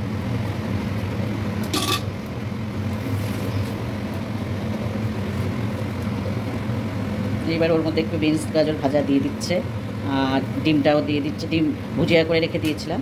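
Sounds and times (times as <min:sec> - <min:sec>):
low mechanical hum: 0:00.0 - 0:13.0
metal utensils clinking: 0:01.7 - 0:02.1.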